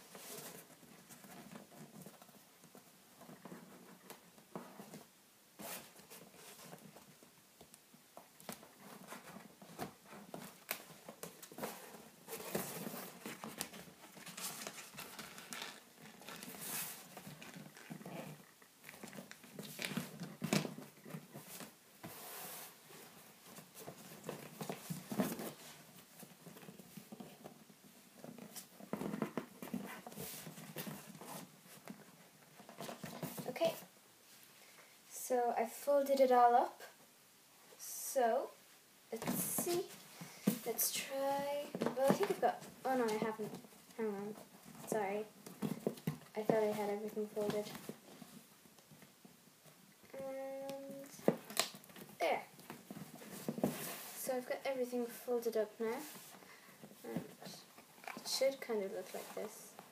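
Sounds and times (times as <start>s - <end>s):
paper rustling and creasing: 8.5s - 33.8s.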